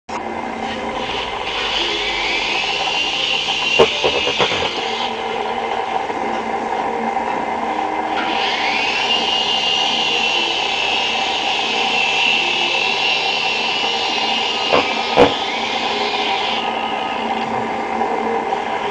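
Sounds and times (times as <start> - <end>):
high rotor whine: 0.1 - 18.9
toy helicopter motors whirring: 1.0 - 5.2.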